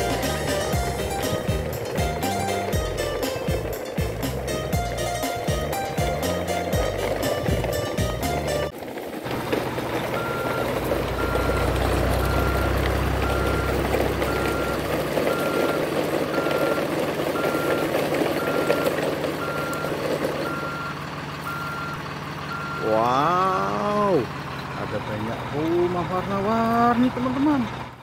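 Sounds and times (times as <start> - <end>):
truck engine running: 0.0 - 28.0
reversing alarm beeping: 10.1 - 24.1.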